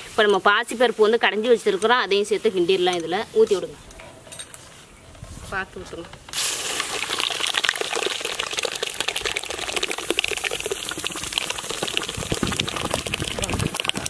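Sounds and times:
crackling sizzle in hot fat: 6.3s - 14.0s
thick paste pouring: 6.4s - 14.0s.

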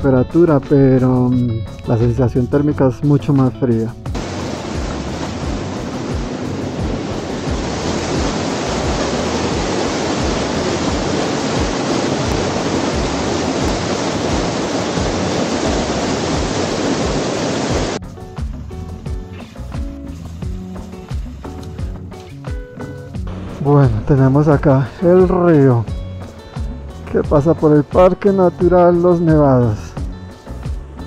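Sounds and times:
rushing river water: 4.1s - 18.0s, 23.3s - 25.9s.

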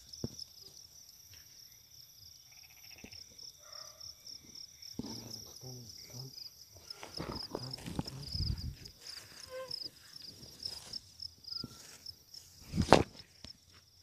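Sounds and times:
crickets chirping: 0.0s - 14.0s
low voice murmuring: 6.9s - 8.9s.

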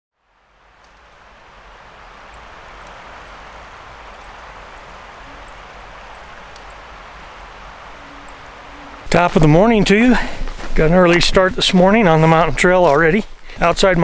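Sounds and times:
creek rushing: 0.3s - 14.0s
faint high chirps: 1.1s - 9.1s.

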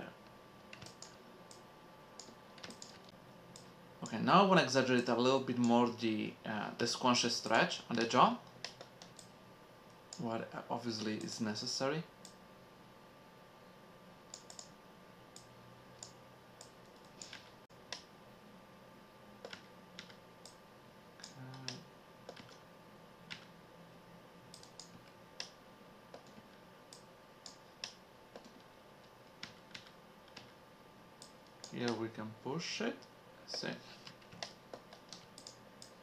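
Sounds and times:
faint steady hum: 0.0s - 36.0s
mouse and keyboard clicks: 2.2s - 3.7s, 14.3s - 14.7s.

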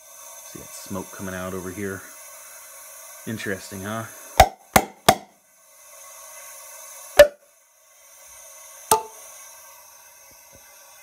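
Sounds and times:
compressed air hissing: 0.0s - 11.0s
hammer taps on metal: 4.4s - 5.3s, 8.9s - 9.1s.

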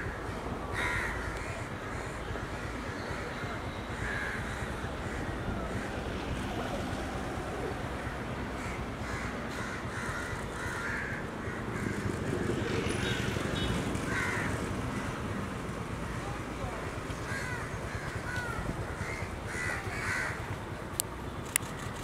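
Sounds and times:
low rumble of city traffic: 0.0s - 22.0s
birds calling: 13.0s - 15.2s.

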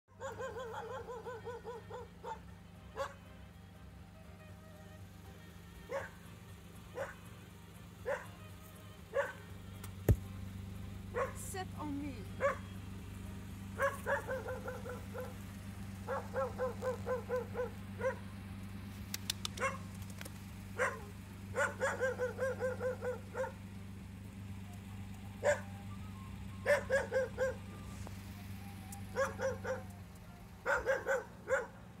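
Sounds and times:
dog barking: 0.2s - 3.2s, 5.9s - 6.2s, 6.9s - 7.3s, 8.0s - 8.4s, 9.1s - 9.5s, 11.1s - 11.4s, 12.3s - 12.7s, 13.8s - 15.4s, 16.0s - 18.3s, 19.6s - 19.8s, 20.8s - 23.7s, 25.4s - 25.7s, 26.6s - 27.7s, 29.1s - 30.0s, 30.6s - 31.9s.

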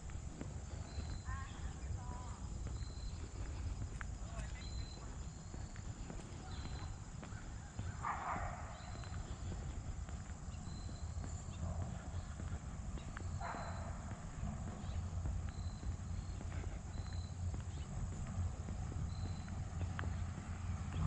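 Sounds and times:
footsteps on a path: 0.0s - 21.0s
dog barks: 7.9s - 9.1s, 13.4s - 14.2s.

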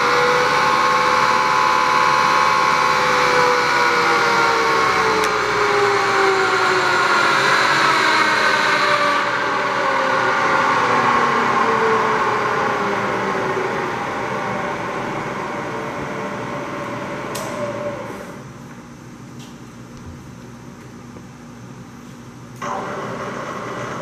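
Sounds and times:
milling machine spindle whine: 0.0s - 18.4s.

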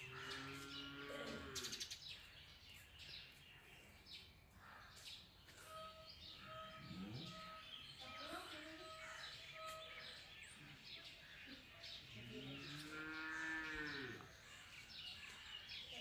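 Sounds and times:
small birds chirping: 0.0s - 16.0s
bird calling in repeated notes: 5.5s - 10.6s.

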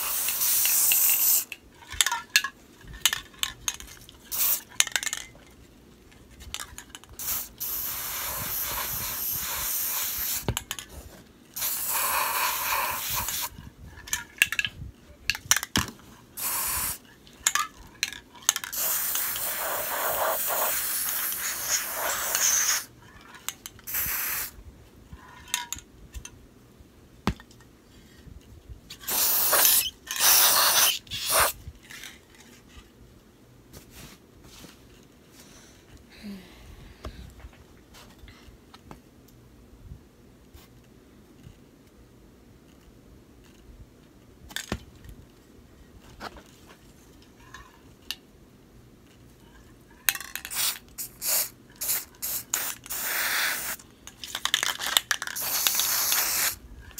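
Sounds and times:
spray can hissing: 0.0s - 1.5s, 4.3s - 4.6s, 7.2s - 10.5s, 11.6s - 13.5s, 16.4s - 17.0s, 18.7s - 22.9s, 23.9s - 24.6s, 29.0s - 31.6s, 50.5s - 53.8s, 55.3s - 56.6s.

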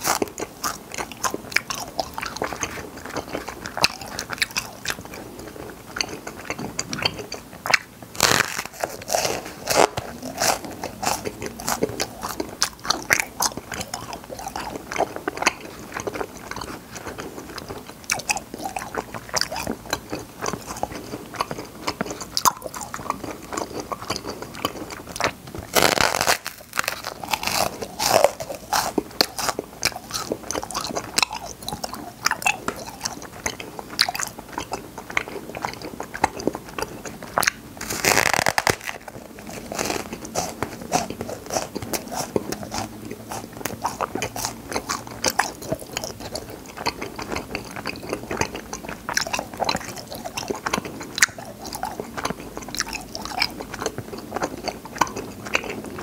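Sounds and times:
popping candy crackling in mouth: 0.0s - 56.0s.

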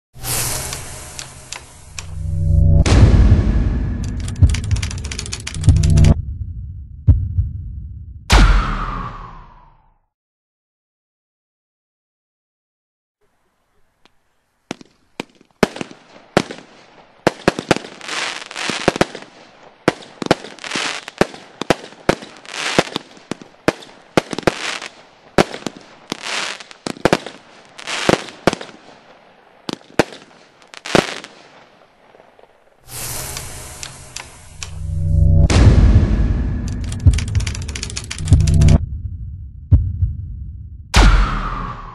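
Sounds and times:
firework stars crackling: 0.2s - 2.4s, 14.0s - 34.8s
firework reports: 14.7s - 34.8s.

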